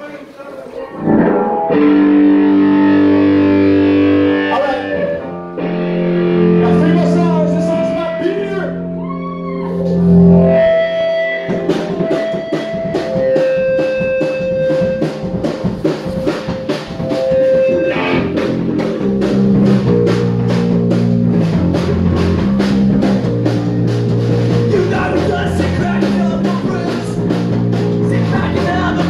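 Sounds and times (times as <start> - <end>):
electric guitar: 0.7 - 29.0
drum kit fast beat: 11.4 - 29.0.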